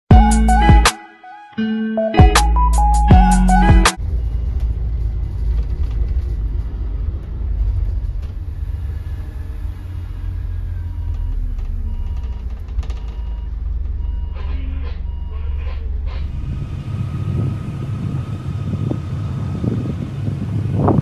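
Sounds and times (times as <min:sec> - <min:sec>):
intro music: 0:00.1 - 0:04.0
low engine rumble: 0:02.7 - 0:21.0.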